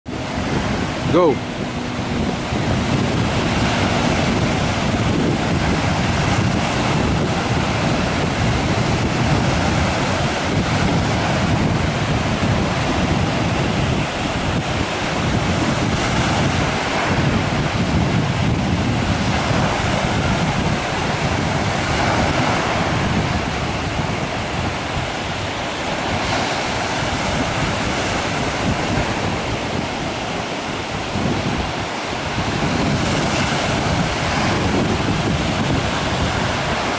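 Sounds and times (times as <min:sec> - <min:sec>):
waves washing up sandy beach: 0:00.1 - 0:36.9
wind buffeting microphone: 0:00.1 - 0:36.9.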